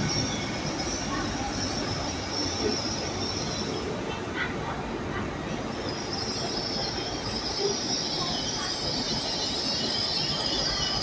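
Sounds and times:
train wheels squealing: 0.0s - 4.4s, 5.2s - 11.0s.

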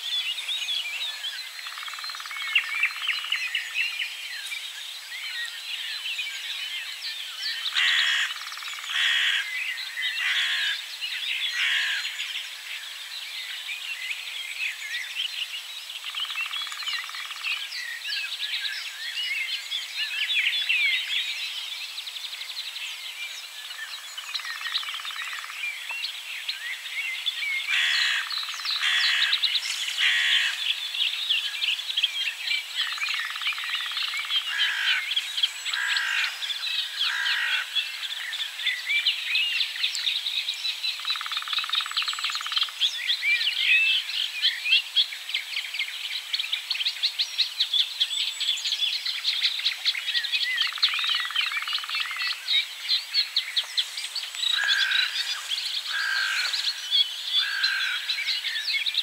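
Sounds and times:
birdsong chorus: 0.0s - 59.0s
woodpecker drumming: 54.3s - 56.8s.

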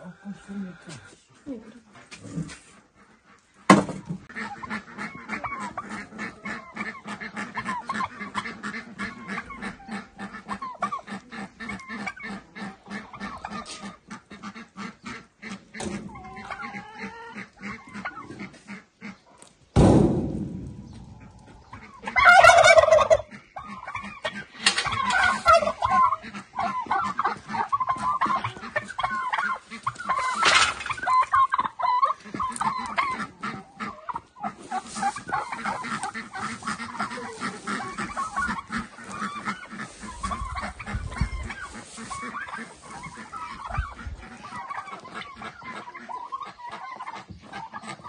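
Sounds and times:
turkeys and chickens clucking: 0.0s - 48.0s.

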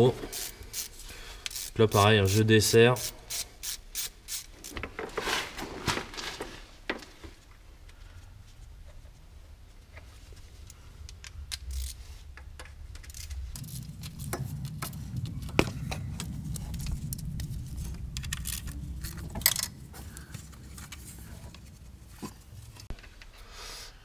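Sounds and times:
low rubbing rumble: 8.3s - 23.0s
hand tool clicking and rattling: 18.2s - 19.8s.

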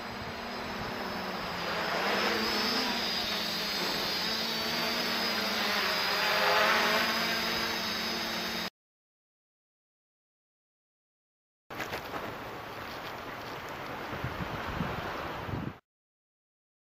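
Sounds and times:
quadcopter propellers whining: 0.0s - 8.7s.

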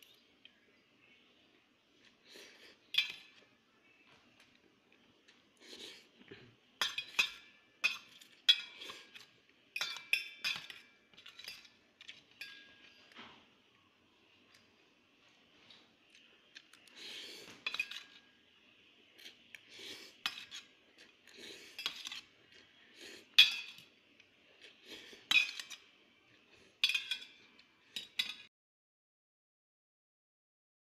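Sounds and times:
cutlery clinking on metal plate: 2.9s - 3.4s, 6.8s - 13.4s, 17.4s - 18.3s, 20.2s - 21.0s, 21.7s - 22.4s, 23.3s - 24.0s, 25.2s - 26.0s, 26.8s - 28.5s.

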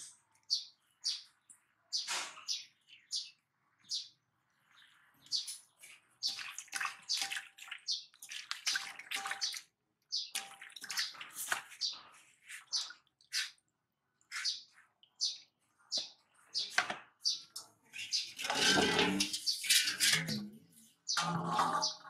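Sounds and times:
water splashing in metal basin: 5.8s - 13.7s, 16.7s - 22.0s.

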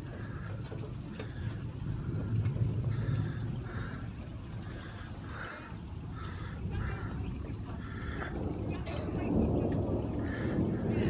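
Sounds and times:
rain falling: 0.0s - 11.0s
rainwater pouring and trickling: 0.0s - 11.0s.

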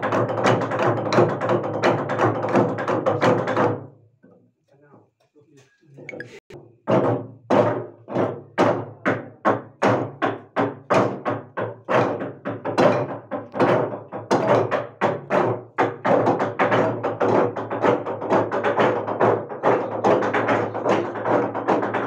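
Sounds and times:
log drum beaten with wooden beaters: 0.0s - 3.9s, 6.2s - 22.0s.

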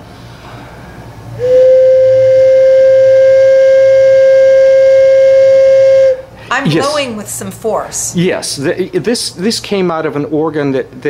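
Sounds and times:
wooden flute pipe note: 1.4s - 6.2s.

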